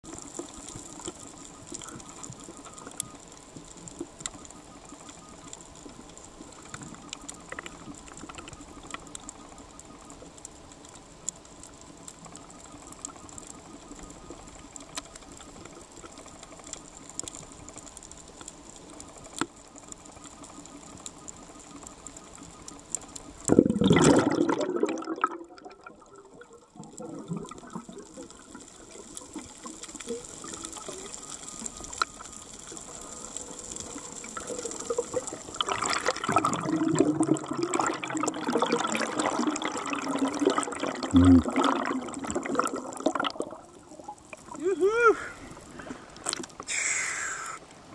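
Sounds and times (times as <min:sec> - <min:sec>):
faint clicks: 0:00.1 - 0:23.5, 0:26.0 - 0:36.5, 0:43.0 - 0:47.8
diver exhaling bubbles: 0:23.5 - 0:26.0, 0:34.4 - 0:43.6
underwater hiss: 0:44.4 - 0:47.7.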